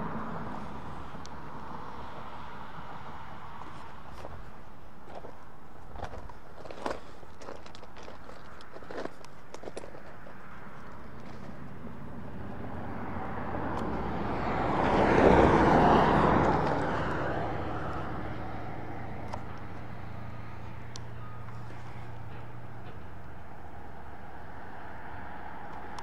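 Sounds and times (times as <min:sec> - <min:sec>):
vehicle driving past: 0:11.4 - 0:26.0.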